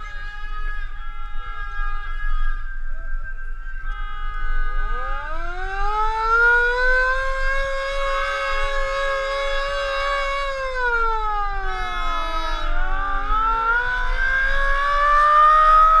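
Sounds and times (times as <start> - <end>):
sirens wailing: 0.0 - 16.0.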